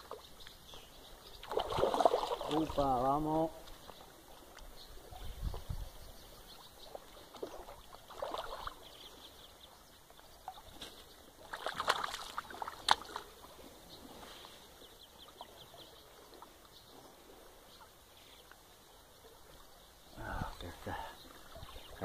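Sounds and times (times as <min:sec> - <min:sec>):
fish splashing at the surface: 0:01.4 - 0:02.8, 0:06.9 - 0:08.8, 0:11.4 - 0:13.3.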